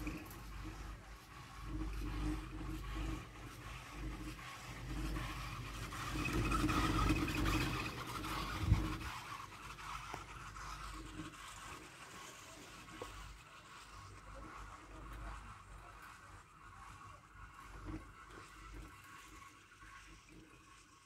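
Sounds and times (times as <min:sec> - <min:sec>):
chairlift mechanical hum and rattle: 0:00.0 - 0:19.8
wind rumble on microphone: 0:08.4 - 0:09.2.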